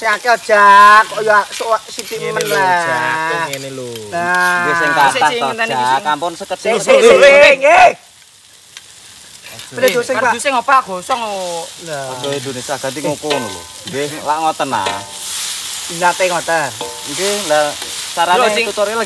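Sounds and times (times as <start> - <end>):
food sizzling in a wok: 0.0 - 19.0
metal spatula scraping wok: 11.1 - 19.0.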